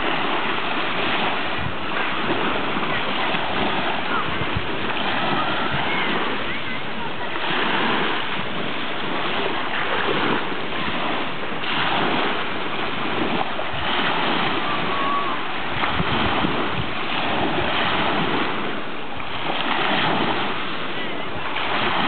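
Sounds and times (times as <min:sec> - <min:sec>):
small waves washing over pebbles: 0:00.0 - 0:22.0.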